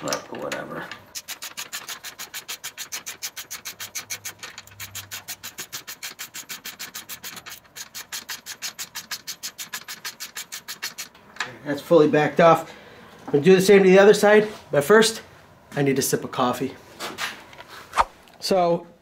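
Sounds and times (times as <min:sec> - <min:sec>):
wrench clicking and rasping: 0:01.1 - 0:11.1.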